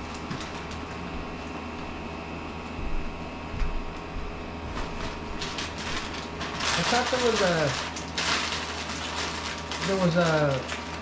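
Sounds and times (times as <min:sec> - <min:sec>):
low room hum: 0:00.0 - 0:11.0
soft low thumps: 0:02.8 - 0:05.5.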